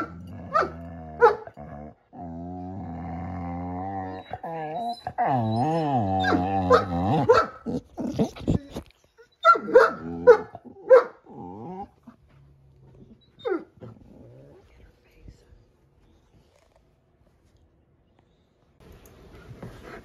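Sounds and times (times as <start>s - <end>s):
dog growling low: 0.0s - 8.9s, 10.1s - 12.2s, 13.8s - 14.7s.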